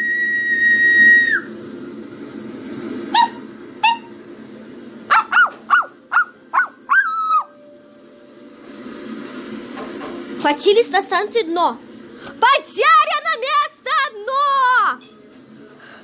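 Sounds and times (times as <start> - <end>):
high whistle: 0.0 - 1.5
puppy yelping: 3.1 - 4.2, 5.1 - 7.6.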